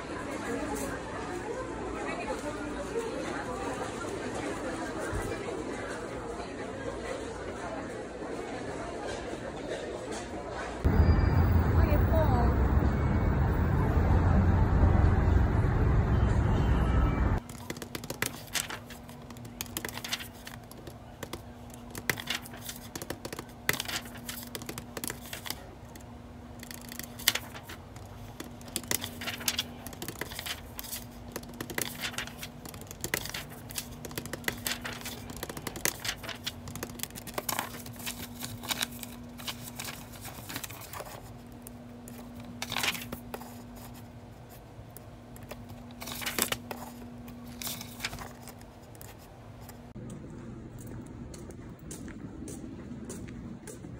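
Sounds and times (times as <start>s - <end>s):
paper rustling and sliding: 17.5s - 26.0s, 26.6s - 44.6s, 45.4s - 49.8s
low steady hum: 18.3s - 53.9s.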